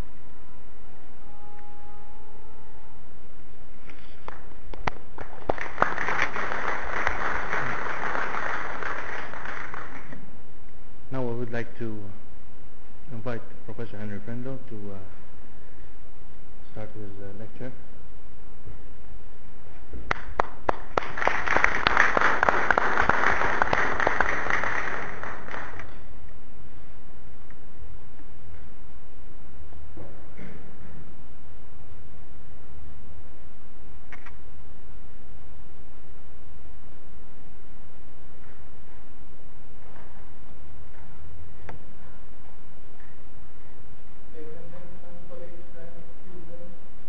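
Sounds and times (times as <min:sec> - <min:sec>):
audience applauding: 0:05.2 - 0:10.2, 0:20.1 - 0:25.9.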